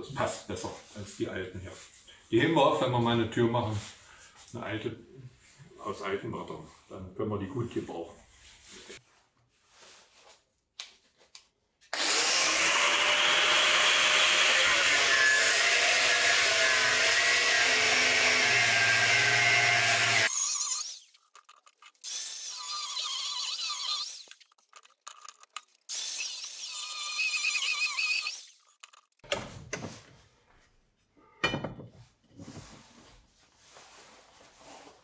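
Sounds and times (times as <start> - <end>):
angle grinder cutting steel: 11.9 - 21.2, 22.0 - 24.5, 25.9 - 28.7.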